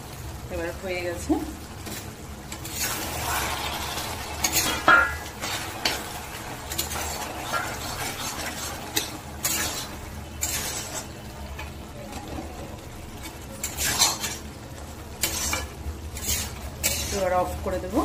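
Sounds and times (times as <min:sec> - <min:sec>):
curry simmering sizzle: 0:00.0 - 0:18.0
spatula scraping a pan: 0:01.8 - 0:11.7, 0:13.2 - 0:14.5, 0:15.2 - 0:17.5.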